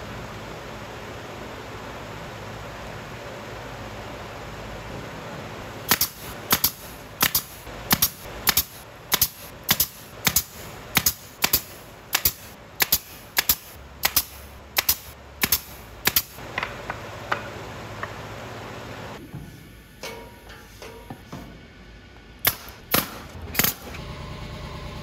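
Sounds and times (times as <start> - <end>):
nail gun firing: 5.8 - 16.4, 22.4 - 24.0.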